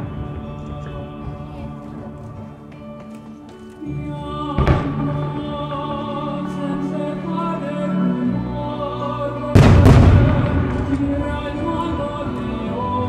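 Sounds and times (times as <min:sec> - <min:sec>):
music with singing: 0:00.0 - 0:13.0
firework shell boom: 0:09.6 - 0:12.0.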